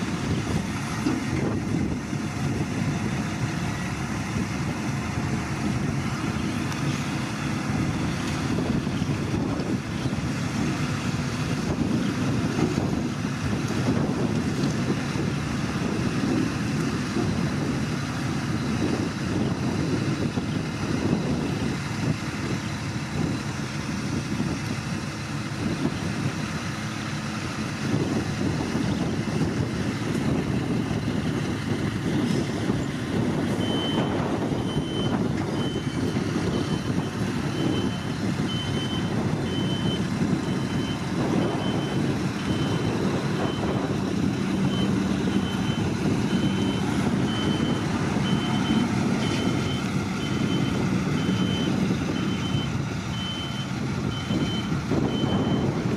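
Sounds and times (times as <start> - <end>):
truck diesel engine running: 0.0 - 55.9
backup alarm beeping: 44.6 - 55.7.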